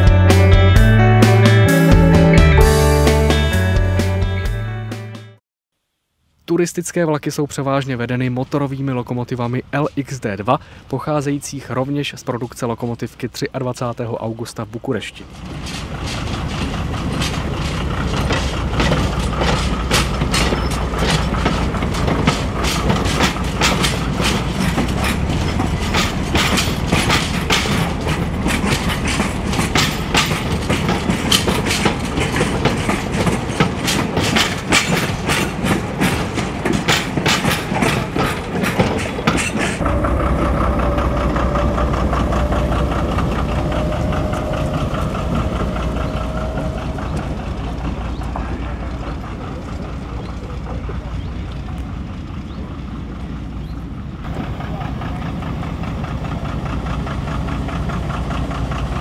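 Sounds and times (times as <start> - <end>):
locomotive engine droning: 7.8 - 59.0
train wheels clicking on rail joints: 14.6 - 59.0.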